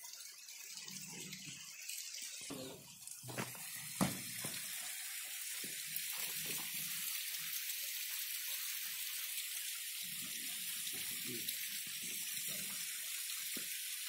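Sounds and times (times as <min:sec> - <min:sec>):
concrete pipes knocking: 0:03.3 - 0:04.6.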